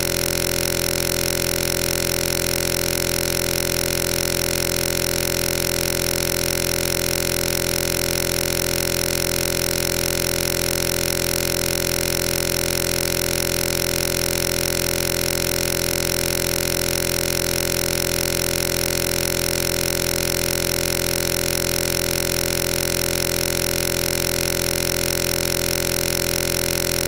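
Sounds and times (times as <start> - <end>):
steady buzzing drone: 0.0 - 27.0.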